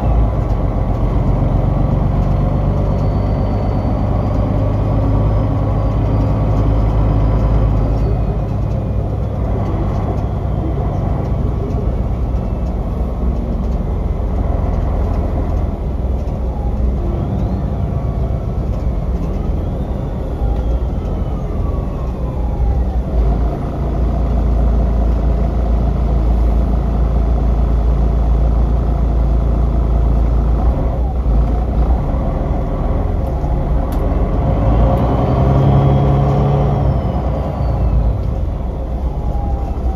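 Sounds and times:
bus diesel engine drone: 0.0 - 39.9
falling whines: 1.7 - 12.7, 34.5 - 39.9.

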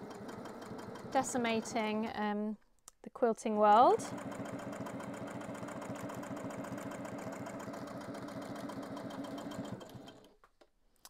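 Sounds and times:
electric sewing machine stitching: 0.0 - 2.1, 3.7 - 10.4.

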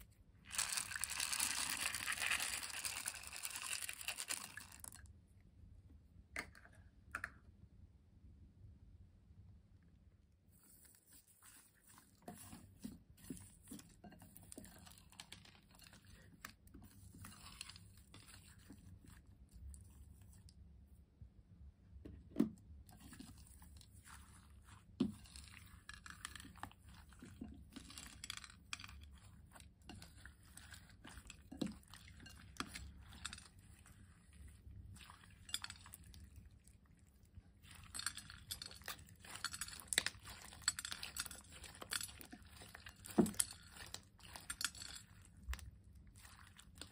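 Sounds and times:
slime crunching with plastic beads: 0.0 - 5.1, 12.4 - 19.7, 23.0 - 46.9.

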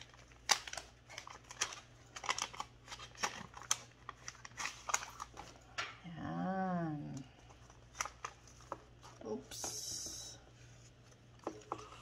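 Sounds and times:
paper envelope rustling and crinkling: 0.0 - 5.7, 7.3 - 9.5.

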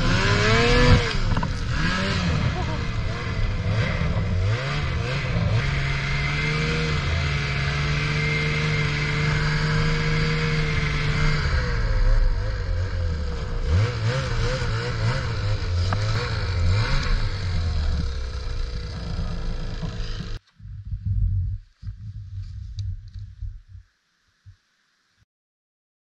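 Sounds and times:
snowmobile engine running: 0.0 - 23.7
steady hiss through snow: 21.6 - 25.2.

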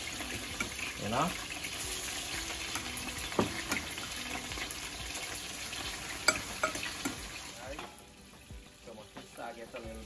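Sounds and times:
fish sizzling in hot oil: 0.0 - 10.0
metal tongs clicking on pot: 0.5 - 0.8, 6.2 - 7.2.

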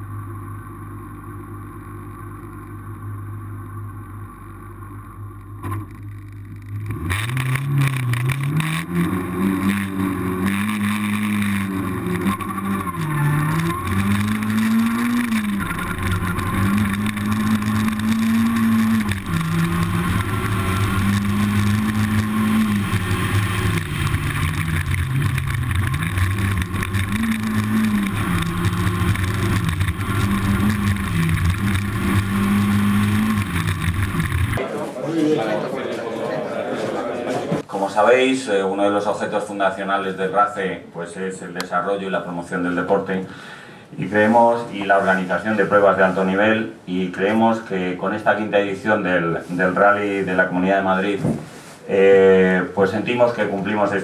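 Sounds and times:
low steady hum: 0.0 - 34.8
rally car engine at high revs: 6.5 - 34.6.

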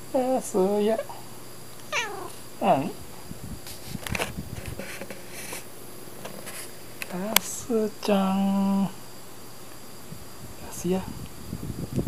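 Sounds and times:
soft rustling: 1.8 - 2.6
cat meowing: 1.9 - 2.4.

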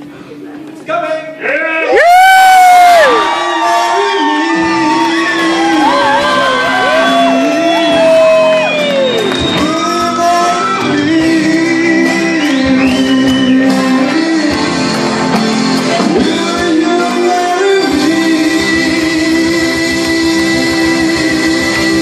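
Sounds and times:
audience shouting: 1.8 - 9.6
live band music: 2.1 - 22.0.

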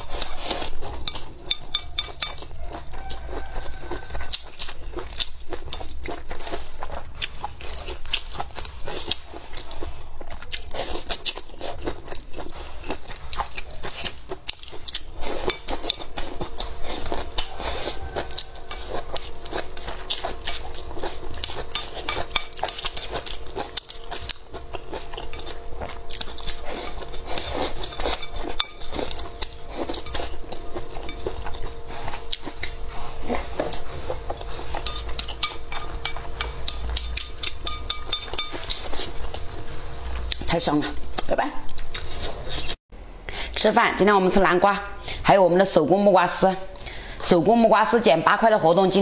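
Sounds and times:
close chewing: 0.0 - 42.8.

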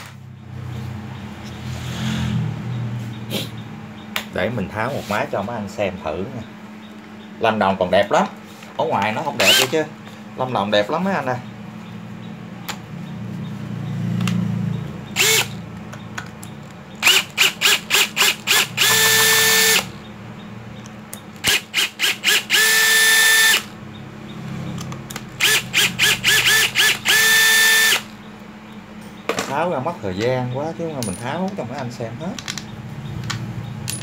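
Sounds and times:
power screwdriver whirring: 9.4 - 9.8, 15.2 - 15.6, 17.0 - 19.9, 21.4 - 23.7, 25.4 - 28.1.

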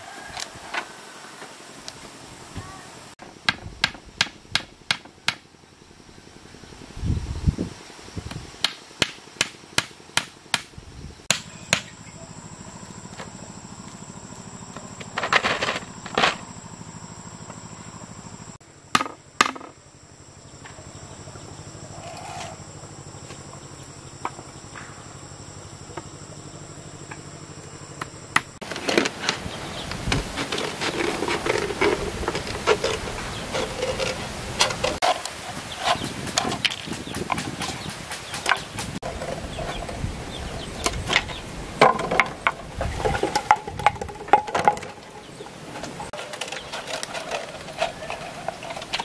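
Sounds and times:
high insect drone: 0.0 - 49.0
hammer knocking on bamboo: 3.4 - 5.4.

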